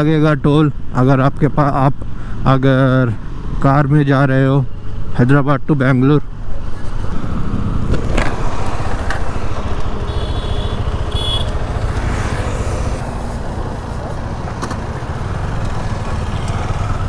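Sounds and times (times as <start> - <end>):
motorcycle engine: 7.0 - 17.0.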